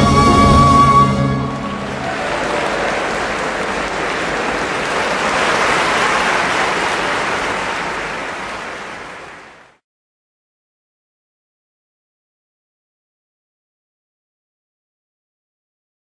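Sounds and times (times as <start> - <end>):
large audience applauding: 1.3 - 9.8.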